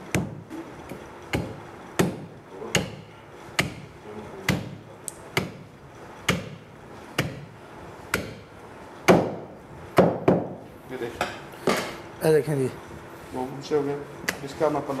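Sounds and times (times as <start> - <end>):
knife chopping on wooden block: 1.3 - 5.6, 6.2 - 6.6, 7.2 - 7.5, 8.1 - 8.5, 9.1 - 10.6.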